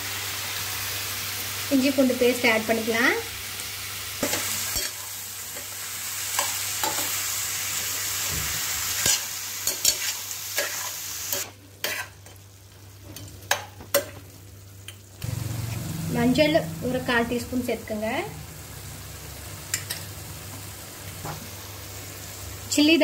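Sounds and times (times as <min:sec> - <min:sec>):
chicken sizzling in oil: 0:00.0 - 0:23.0
spatula scraping pan: 0:09.0 - 0:12.2.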